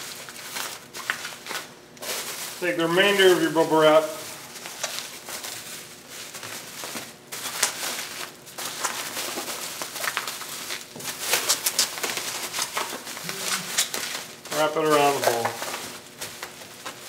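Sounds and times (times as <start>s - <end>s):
bubble wrap crinkling: 0.0s - 17.0s.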